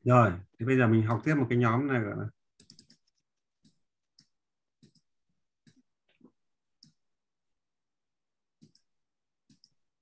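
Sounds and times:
keyboard and mouse clicks: 2.6 - 7.0, 8.6 - 9.8.

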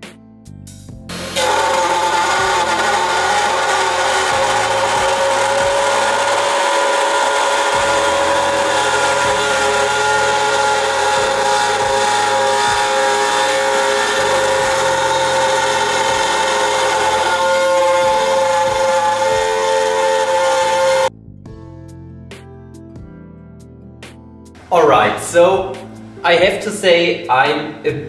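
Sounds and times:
cnc spindle cutting wood: 1.1 - 21.1.

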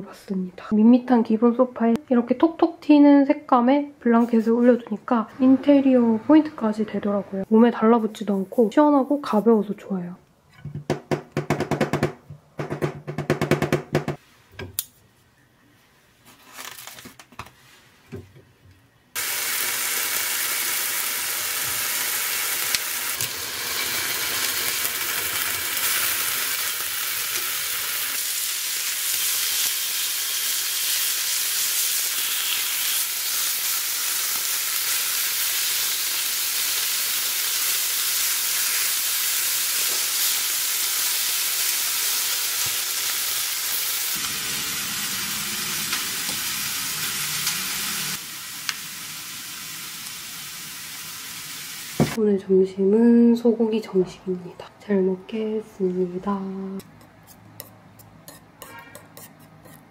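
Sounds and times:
steaks sizzling in frying pan: 19.2 - 52.2.

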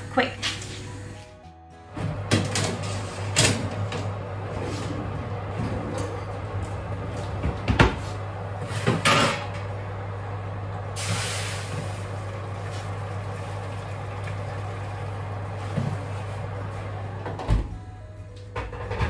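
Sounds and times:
steady low hum: 1.9 - 19.0
hiss of steam: 11.0 - 12.0.

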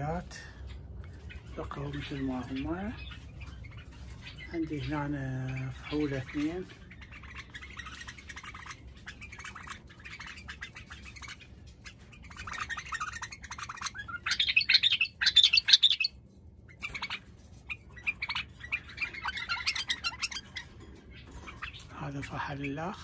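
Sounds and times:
bulbuls chattering: 0.0 - 23.0.

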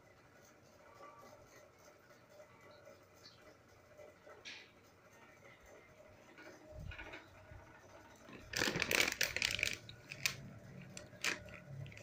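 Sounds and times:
packaging rustling: 8.3 - 12.0.

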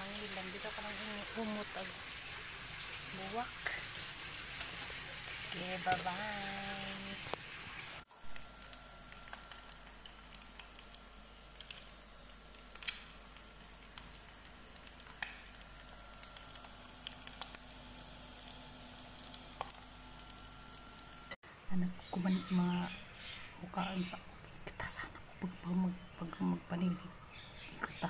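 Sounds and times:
egg sizzling in a pan: 0.0 - 21.4
crackles and pops: 7.2 - 21.4.

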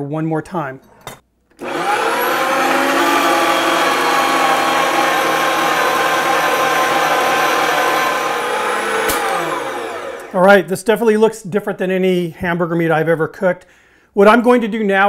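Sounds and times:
meat grinder motor whining: 1.6 - 10.5.

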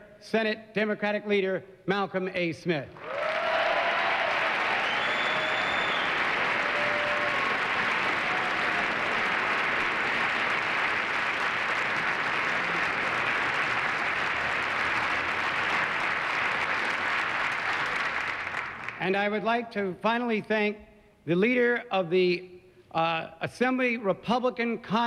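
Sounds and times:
crowd applauding: 3.0 - 19.2.

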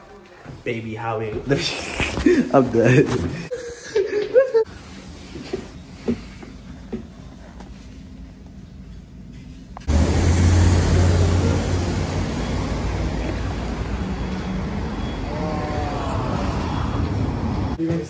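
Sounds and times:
passing cars: 9.8 - 17.8
vehicle engine drone: 9.8 - 17.8.

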